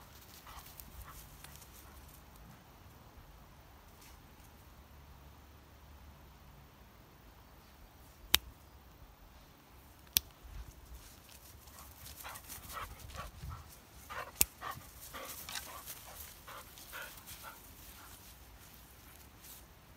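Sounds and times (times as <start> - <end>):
dog panting: 12.2 - 18.2
sharp clicks: 14.3 - 14.6.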